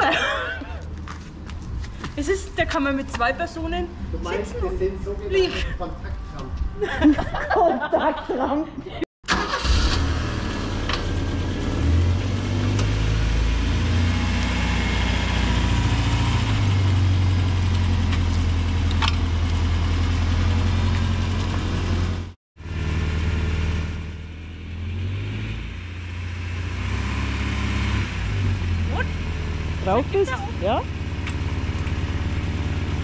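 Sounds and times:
van engine running at low revs: 9.6 - 33.0.

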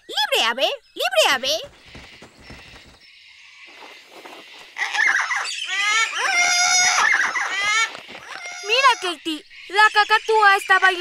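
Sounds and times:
cartoon cockatoos squawking: 4.8 - 9.4.

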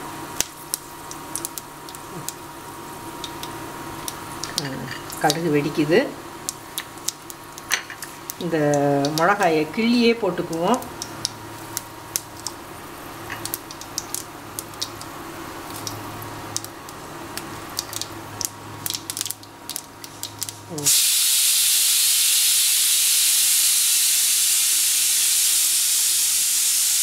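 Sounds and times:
mustard seeds spluttering in oil: 0.1 - 21.4
loud steady hiss: 20.6 - 27.0.

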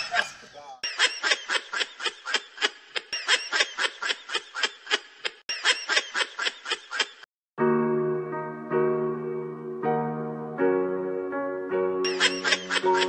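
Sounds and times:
person laughing: 0.0 - 7.2, 12.1 - 13.0.

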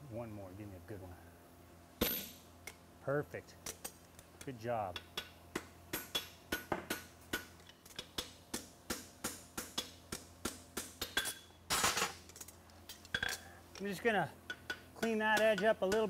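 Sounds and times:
hammer striking on anvil: 5.0 - 11.4, 14.5 - 16.0.

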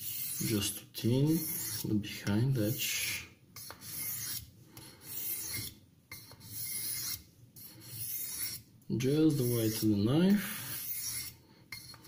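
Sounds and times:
knife blade stroked on whetstone: 3.6 - 8.6, 10.5 - 12.0.

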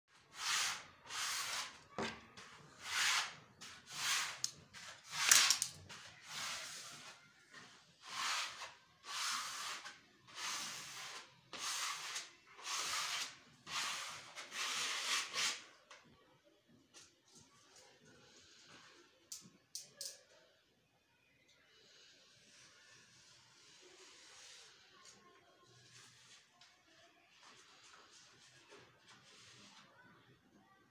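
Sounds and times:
brush swishing on wallpaper: 22.4 - 30.0.

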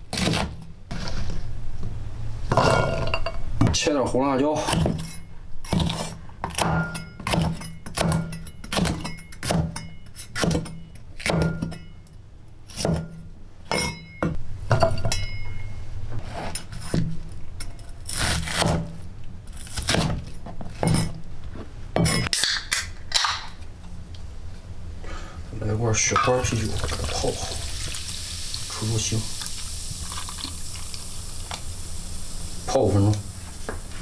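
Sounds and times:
knife chopping on wooden board: 0.1 - 0.6, 10.4 - 11.7.

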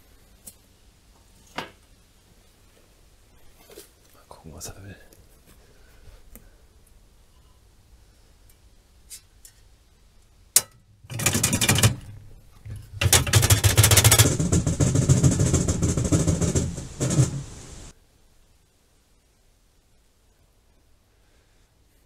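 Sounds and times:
rattling and scraping at trap: 11.0 - 17.9
loud clattering: 11.1 - 17.9.

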